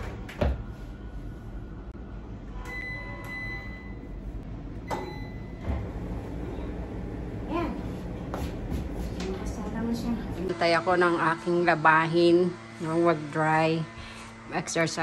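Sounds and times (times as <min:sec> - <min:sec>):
washing machine beep: 0:02.6 - 0:04.2, 0:04.8 - 0:06.0.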